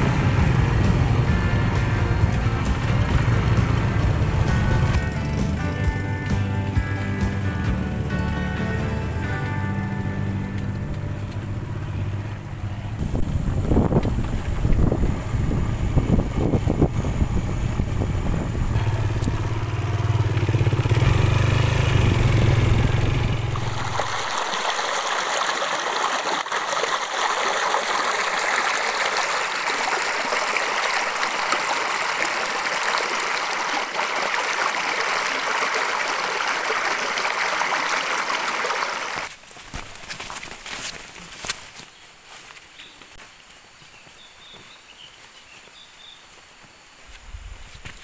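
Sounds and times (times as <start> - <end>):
motorcycle engine running: 0.0 - 24.5
wind rumble on microphone: 12.6 - 19.6, 47.1 - 48.0
loud steady rushing noise: 21.9 - 25.0.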